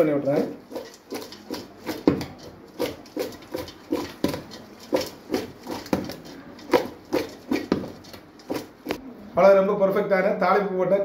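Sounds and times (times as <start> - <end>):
food knocking in a steel pot: 0.6 - 9.0.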